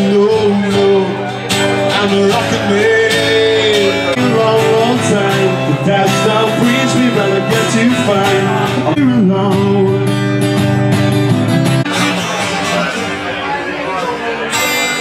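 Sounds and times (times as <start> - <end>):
person singing: 0.0 - 10.3
strummed acoustic guitar: 0.0 - 15.0.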